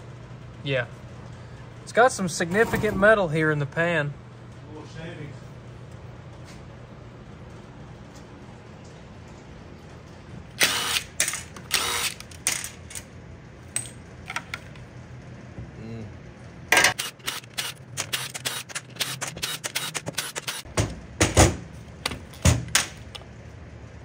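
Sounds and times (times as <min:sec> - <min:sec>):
cordless driver bursts: 0:10.6 - 0:12.3, 0:17.0 - 0:20.6.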